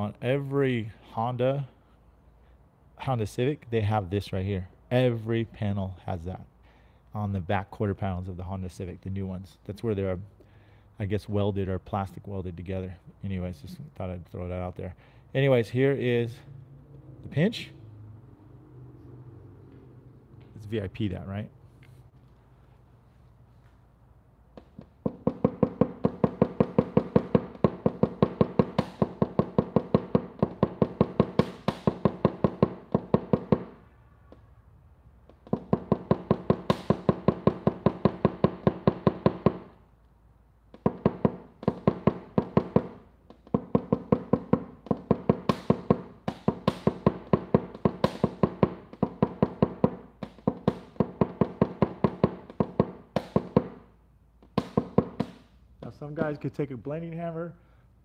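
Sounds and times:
hammer tapping sheet metal: 24.7s - 33.8s, 40.8s - 53.8s, 54.4s - 55.5s.

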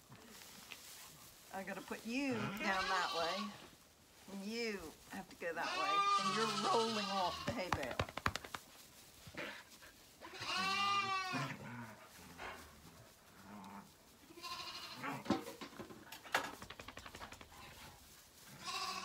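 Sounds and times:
lamb bleating: 2.3s - 3.6s, 5.6s - 7.8s, 10.2s - 11.6s, 14.3s - 15.3s, 18.5s - 19.0s.

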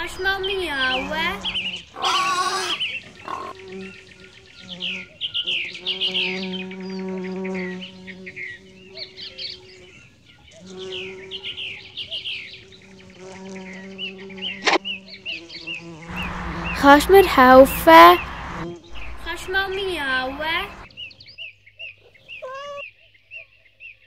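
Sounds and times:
flying insect buzzing: 0.0s - 16.8s
birds chirping and twittering: 0.0s - 24.0s.

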